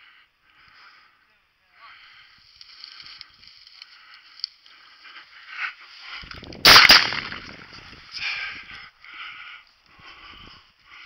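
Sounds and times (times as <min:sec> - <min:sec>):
footsteps rustling dry brush: 0:02.1 - 0:08.7
shotgun blast: 0:06.6 - 0:07.7.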